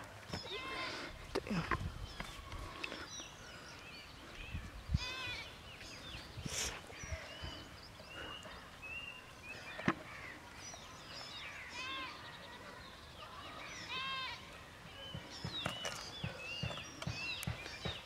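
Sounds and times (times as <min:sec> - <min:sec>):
birds chirping: 0:00.0 - 0:18.0
high bleating animal calls: 0:00.4 - 0:01.1, 0:05.0 - 0:05.5, 0:11.7 - 0:12.3, 0:13.8 - 0:14.6.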